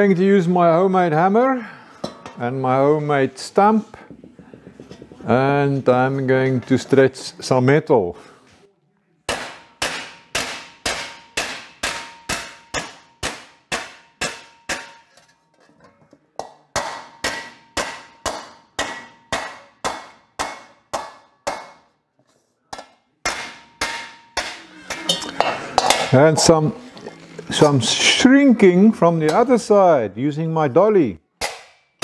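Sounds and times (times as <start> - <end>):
hammer striking sheet metal: 9.3 - 15.4, 16.4 - 21.9, 22.8 - 26.2, 31.4 - 32.0.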